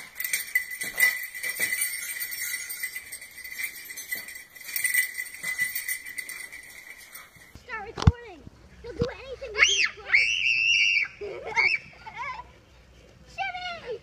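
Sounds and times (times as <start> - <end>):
small bells jingling: 0.0 - 7.9.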